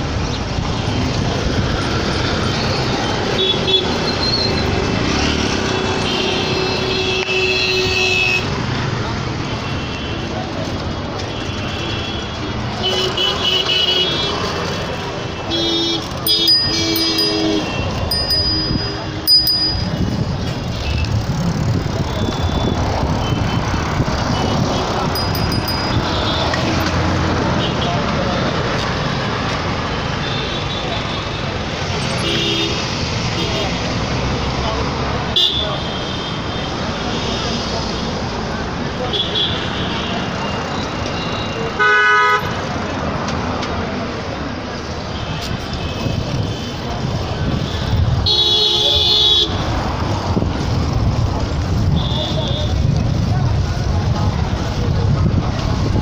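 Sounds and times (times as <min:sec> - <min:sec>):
road traffic passing: 0:00.0 - 0:56.0
high-pitched tones: 0:16.3 - 0:20.1
high bell-like rings: 0:16.3 - 0:20.2, 0:25.2 - 0:26.8.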